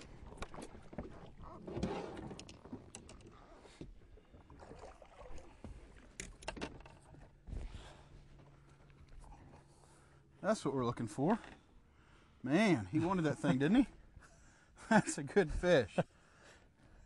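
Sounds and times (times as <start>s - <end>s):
water splashing: 4.4s - 6.2s.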